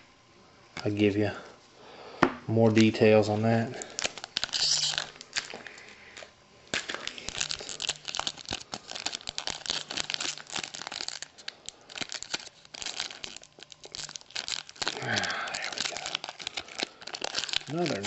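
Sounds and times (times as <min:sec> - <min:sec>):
wrapper crinkling and tearing: 0:03.8 - 0:18.0.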